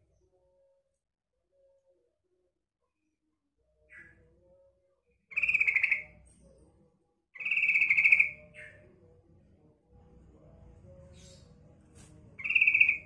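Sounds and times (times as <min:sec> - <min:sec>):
bird trilled calls: 0:05.3 - 0:06.0, 0:07.4 - 0:08.8, 0:12.4 - 0:13.0.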